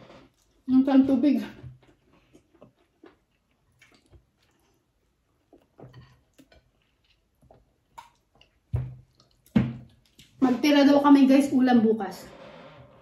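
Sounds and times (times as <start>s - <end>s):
soft chewing and lip smacks: 1.6s - 10.4s.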